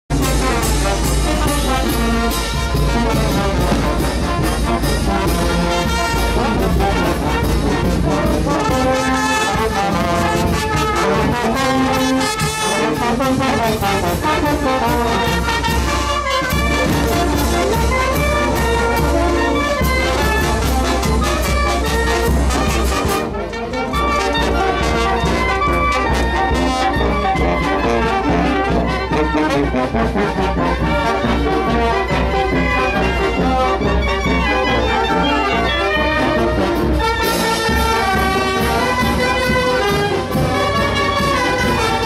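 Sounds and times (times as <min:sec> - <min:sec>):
steady drum beat: 0:00.1 - 0:23.2, 0:35.8 - 0:42.0
brass band playing: 0:00.1 - 0:42.0.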